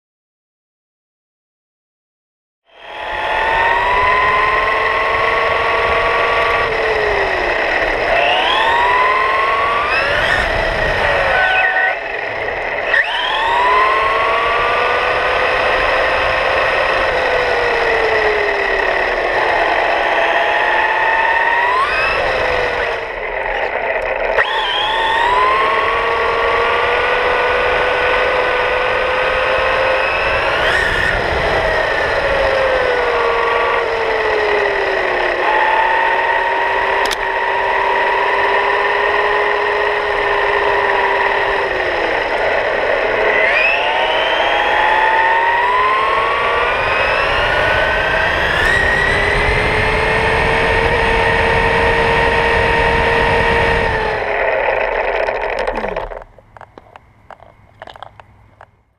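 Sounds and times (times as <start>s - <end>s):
electric toy truck motor whining: 2.7s - 58.8s
click: 37.0s - 37.3s.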